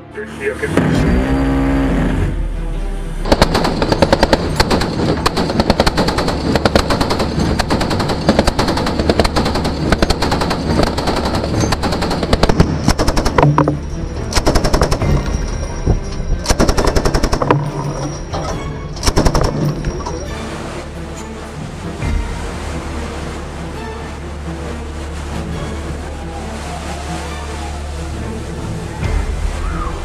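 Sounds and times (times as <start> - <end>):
machine-gun fire: 3.3 - 13.6, 14.4 - 15.3, 16.5 - 17.6, 19.0 - 19.7.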